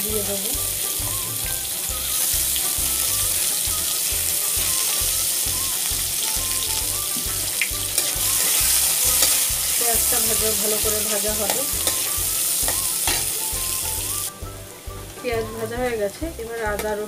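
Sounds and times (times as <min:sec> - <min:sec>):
onions sizzling in hot oil: 0:00.0 - 0:17.0
spatula stirring in a pan: 0:07.1 - 0:14.0.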